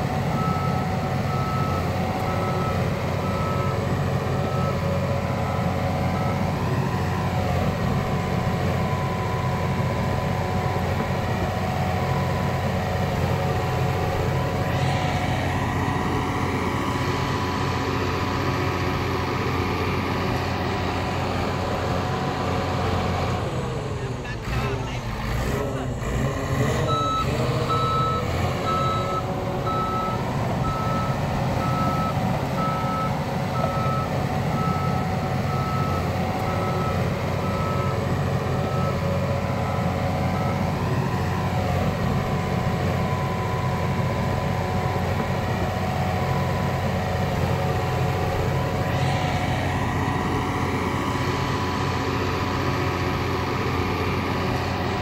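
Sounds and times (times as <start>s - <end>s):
diesel engine running: 0.0s - 55.0s
back-up alarm beeping: 26.9s - 40.8s.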